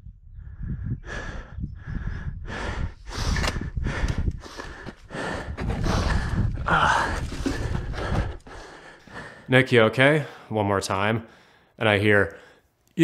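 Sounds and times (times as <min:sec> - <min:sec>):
man breathing hard: 0:00.3 - 0:09.6, 0:11.3 - 0:11.8
footsteps: 0:03.4 - 0:09.1.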